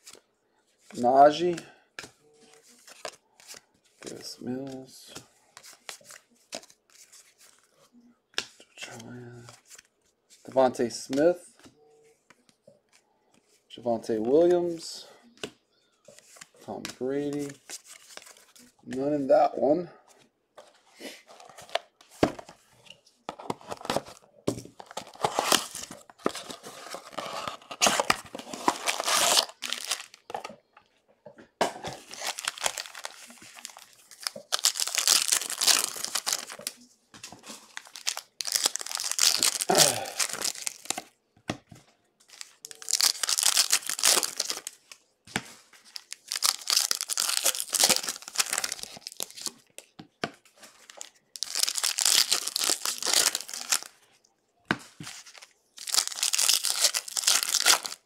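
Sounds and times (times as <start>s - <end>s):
card pack wrappers tearing and crinkling: 24.8s - 30.4s, 31.9s - 36.8s, 37.4s - 41.1s, 42.3s - 45.0s, 45.8s - 49.6s, 50.8s - 54.0s, 55.2s - 58.0s.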